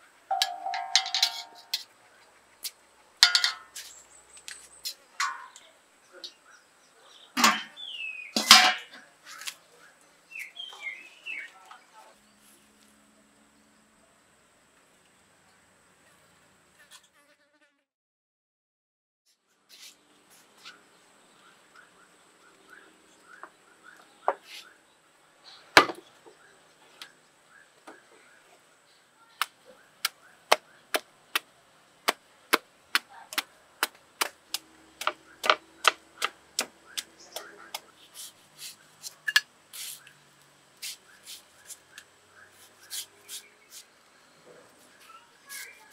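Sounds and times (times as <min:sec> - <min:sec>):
thin steady high tone: 0:00.3 - 0:01.8
metal clanks: 0:00.3 - 0:01.9, 0:03.2 - 0:03.8, 0:08.4 - 0:09.0
knife chopping mango: 0:30.0 - 0:37.9.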